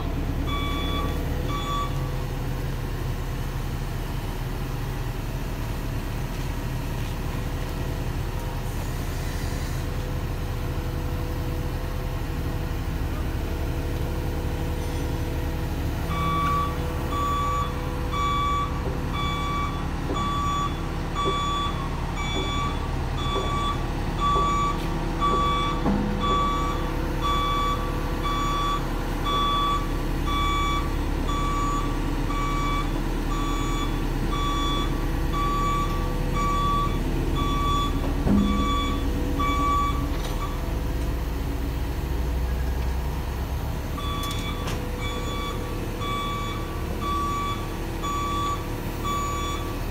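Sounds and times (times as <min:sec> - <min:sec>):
diesel engine rumble: 0:00.0 - 0:49.9
back-up alarm beeping: 0:00.5 - 0:02.1, 0:16.1 - 0:40.6, 0:44.0 - 0:49.8.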